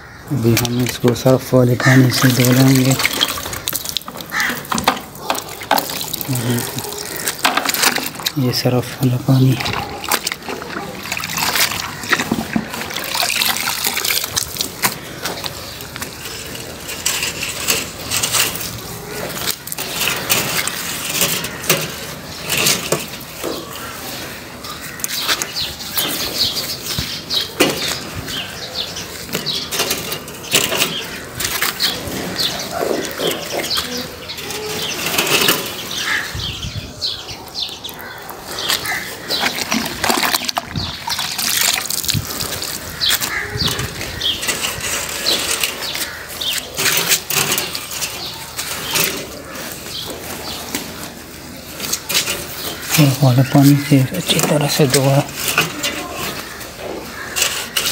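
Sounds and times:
water splashes and drips: 2.1s - 8.4s, 9.6s - 16.0s, 38.7s - 44.0s
wet cloth sloshing in water: 9.6s - 15.9s, 38.7s - 44.2s.

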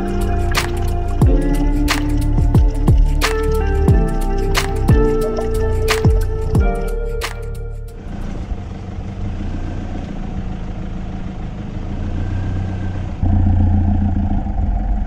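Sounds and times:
vehicle engine on dirt track: 7.9s - 15.0s.

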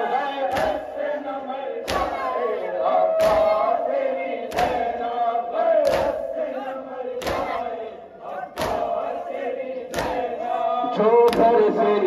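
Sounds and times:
crowd chanting a lament: 0.0s - 12.0s
chest beating slaps: 0.4s - 1.0s, 1.8s - 7.8s, 8.4s - 9.2s, 9.9s - 10.5s, 11.2s - 11.6s.

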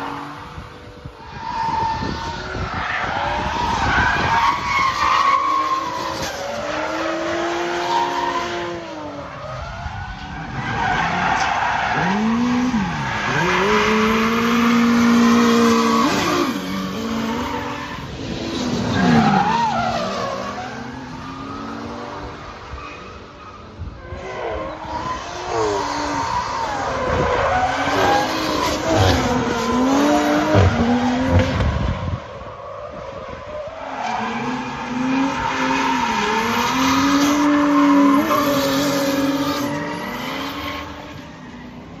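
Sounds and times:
car engines revving hard: 0.0s - 42.0s
tyres sliding and squealing: 1.2s - 21.9s, 32.5s - 42.0s.

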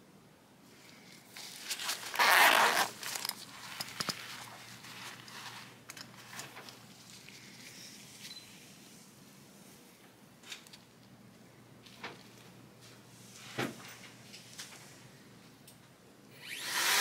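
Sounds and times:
zipper pulled open: 1.8s - 4.5s.

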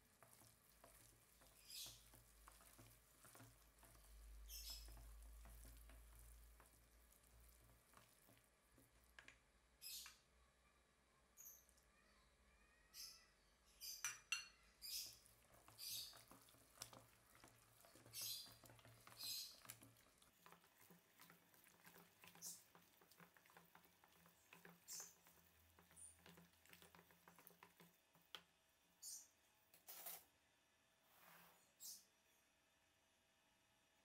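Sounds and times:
chopsticks stirring in metal bowl: 0.0s - 9.2s, 14.9s - 28.4s.

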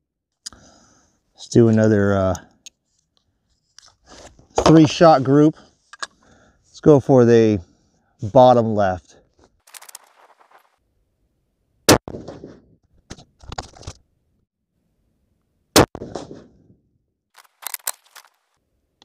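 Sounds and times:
rifle shots: 11.9s - 12.6s, 15.8s - 16.6s.

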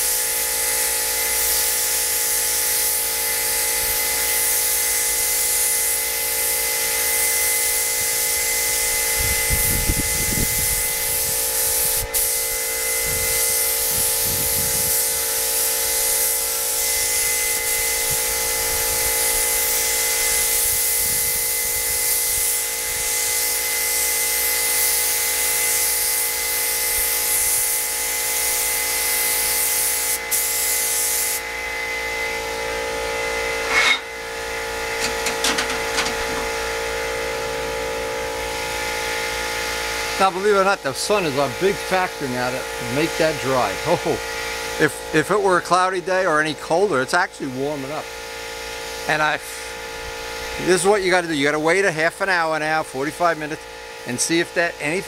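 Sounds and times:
spray gun hissing: 0.0s - 31.4s
steady motor hum: 0.0s - 55.0s.

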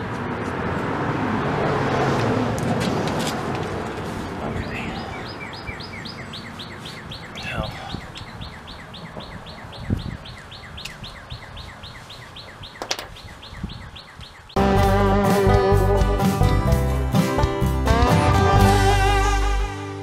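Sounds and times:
bird chirping rapidly: 4.5s - 14.6s.

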